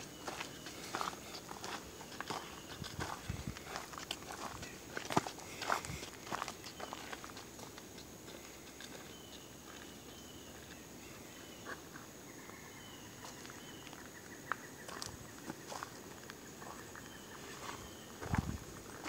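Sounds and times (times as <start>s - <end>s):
footsteps crunching in dry leaves: 0.0s - 10.8s
faint high chirps: 6.6s - 7.3s.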